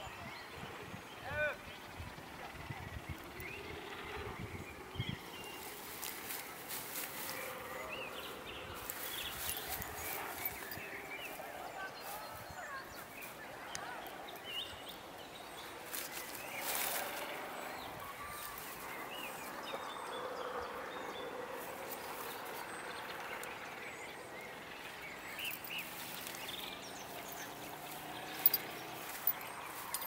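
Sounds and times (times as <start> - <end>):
dog rustling through dry brush: 5.5 - 7.8, 8.8 - 11.4, 15.8 - 17.3.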